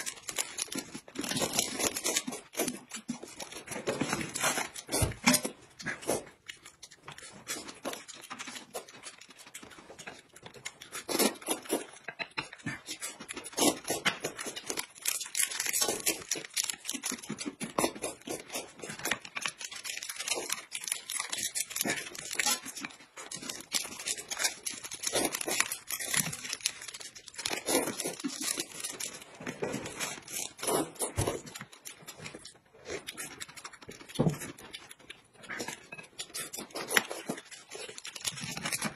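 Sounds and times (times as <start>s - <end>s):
plastic wrapper crinkling: 0.0s - 5.5s, 13.4s - 35.0s, 36.2s - 38.9s
chewing: 0.0s - 38.9s.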